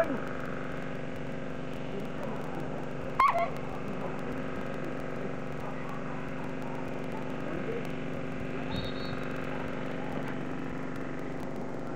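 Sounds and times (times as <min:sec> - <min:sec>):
steady low hum: 0:00.0 - 0:11.9
dog yelping: 0:03.2 - 0:03.6.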